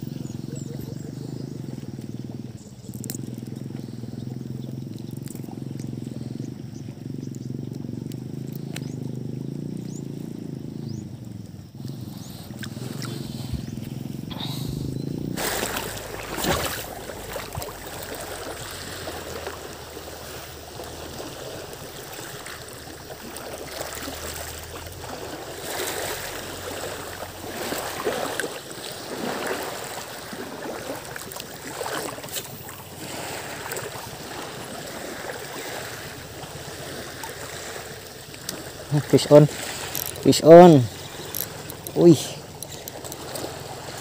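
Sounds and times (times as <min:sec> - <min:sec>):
seawater lapping against rocks: 0:00.0 - 0:44.0.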